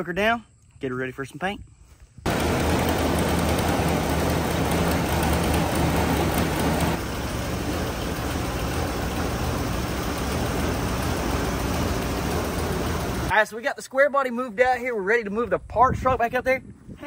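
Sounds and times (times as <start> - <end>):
truck engine idling: 2.3 - 13.3.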